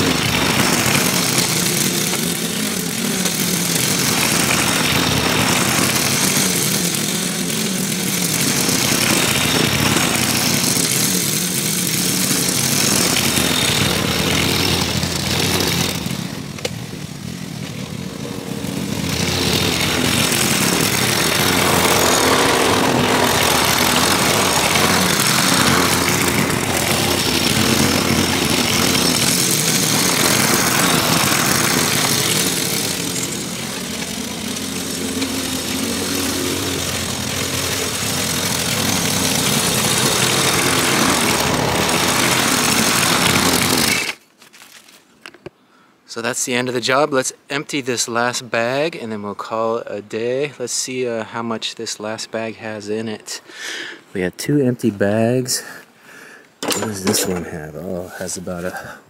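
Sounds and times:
lawn mower cutting grass: 0.0 - 45.0, 56.6 - 58.9.

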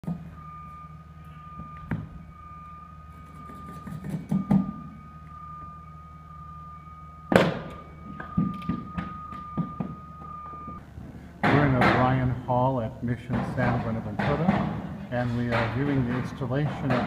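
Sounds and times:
continuous high-pitched tone: 0.0 - 12.0
steady low hum: 0.0 - 17.0.

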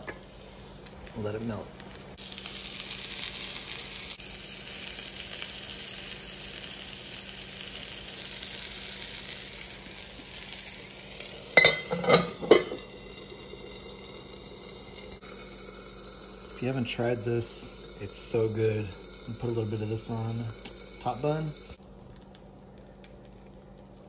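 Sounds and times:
burger patty sizzling in skillet: 0.0 - 21.8
metal lid clanking on skillet: 11.6 - 12.8.

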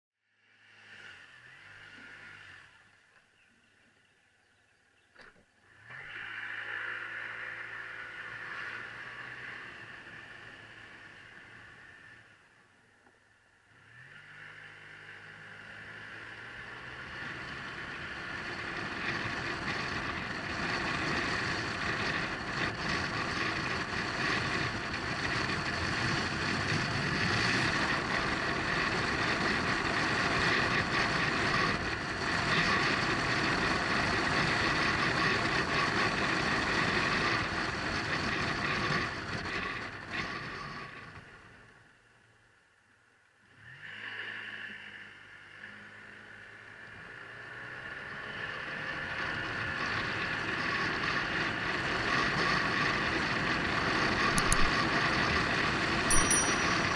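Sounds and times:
muffled scooter riding noise: 15.4 - 42.0, 48.0 - 56.9.

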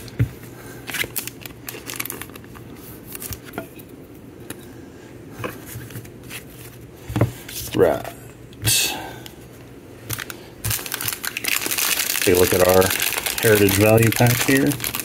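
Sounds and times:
steady low hum: 0.0 - 15.0
wrappers crinkling: 0.9 - 3.4, 10.1 - 15.0.

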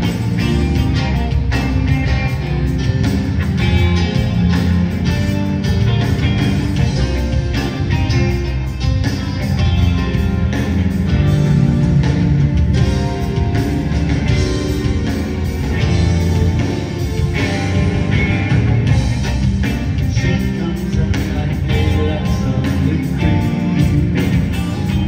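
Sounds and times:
drum kit beat: 0.0 - 25.0
rock band playing: 0.0 - 25.0.

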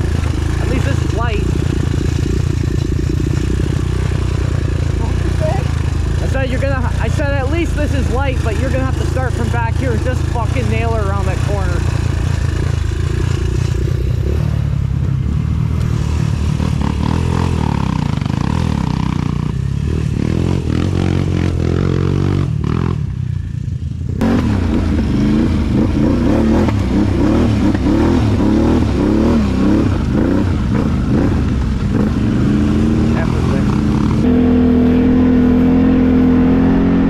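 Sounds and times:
atv engine revving: 0.0 - 37.0
motorcycle engine pulling away: 0.0 - 37.0.

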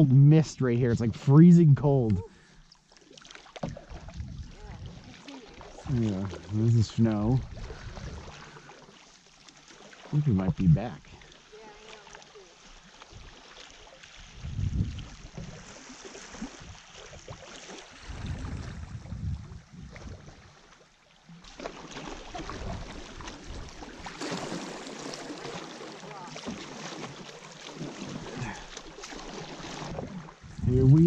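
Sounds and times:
paddles dipping in water: 0.0 - 31.0
water lapping along hull: 0.0 - 31.0
rushing river current: 3.0 - 31.0
low rumbles: 18.1 - 20.3, 30.4 - 31.0.

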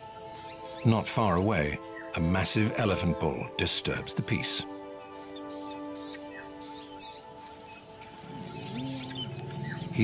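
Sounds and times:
background music with long held notes: 0.0 - 10.0
bird chirps: 5.0 - 10.0.

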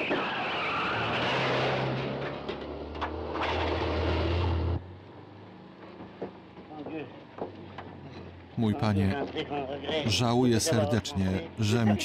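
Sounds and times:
small car engine running hard: 0.0 - 8.6
tyres rushing on dirt road: 0.0 - 12.0.

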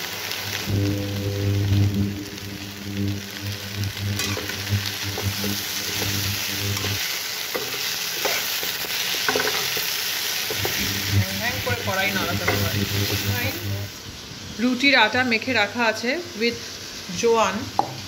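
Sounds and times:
vegetables sizzling in a pan: 0.0 - 18.0
steady low hum: 0.5 - 7.0, 10.5 - 14.0
spatula scraping a metal pan: 4.1 - 9.9.

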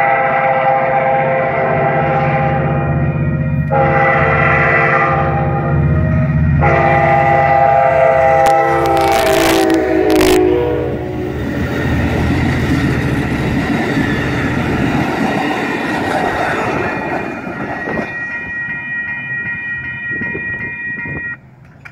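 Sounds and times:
crossing bell ringing: 5.4 - 21.8
train wheels clattering on rails: 11.3 - 21.9.

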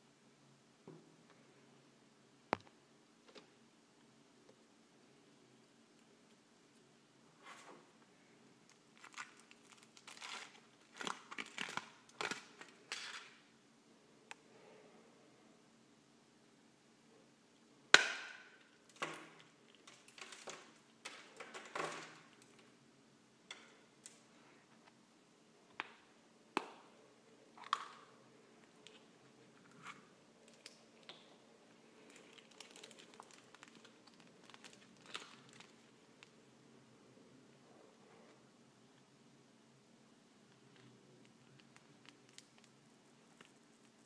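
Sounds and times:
chocolate shell cracking: 8.7 - 13.4, 17.9 - 22.6, 32.0 - 36.4, 41.4 - 44.0
paper sticker sheet crinkling: 32.0 - 36.3.

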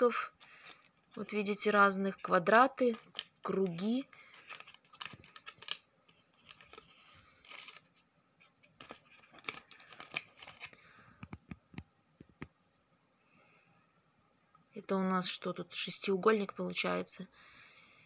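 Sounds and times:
plastic pieces clicking: 2.8 - 7.9, 8.6 - 11.6.

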